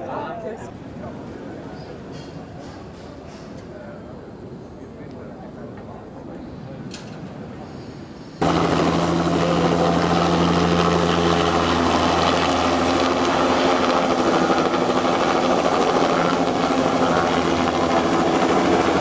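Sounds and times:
thin high turbine whine: 8.2 - 19.0
helicopter engine and rotor noise: 8.4 - 19.0.

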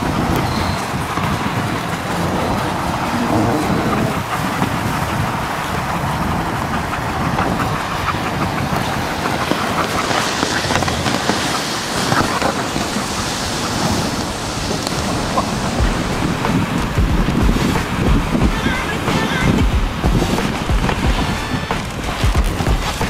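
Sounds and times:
sled runners scraping snow: 0.0 - 23.0
low rumble: 14.2 - 23.0.

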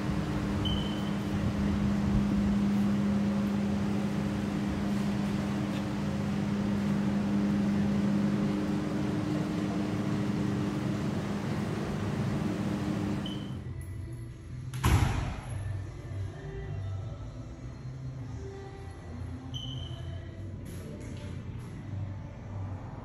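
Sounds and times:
low machine hum: 0.0 - 14.7.

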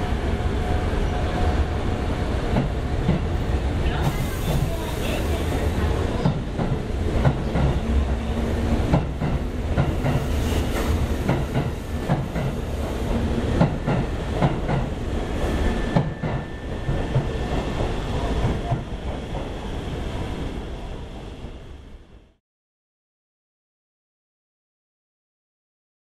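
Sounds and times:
train rumble: 0.0 - 22.4
train wheels clacking over rail joints: 8.8 - 15.0.

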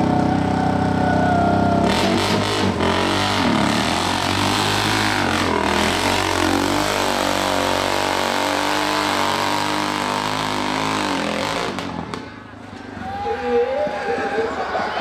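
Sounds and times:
dirt bike engine revving: 0.0 - 12.2.

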